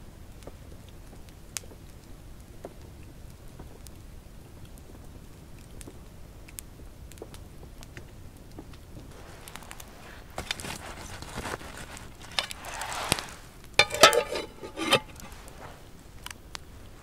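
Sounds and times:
campfire crackling: 0:00.3 - 0:17.0
metal lid clattering: 0:13.8 - 0:15.4.

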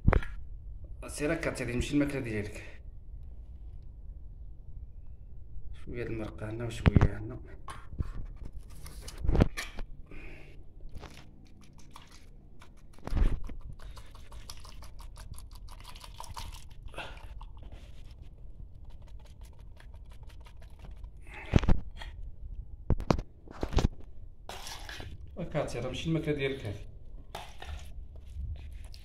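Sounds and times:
wet squelching food: 0:10.8 - 0:22.1, 0:24.5 - 0:25.4, 0:27.1 - 0:29.0.

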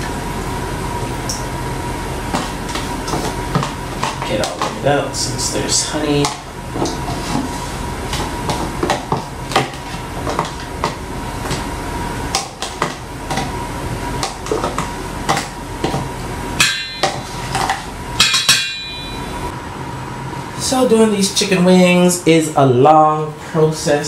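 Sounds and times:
utensil striking metal bowl: 0:16.6 - 0:19.3.

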